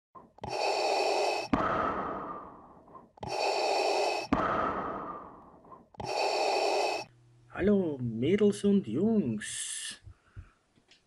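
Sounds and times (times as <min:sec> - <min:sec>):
breathing-like hiss: 0:00.4 - 0:07.1.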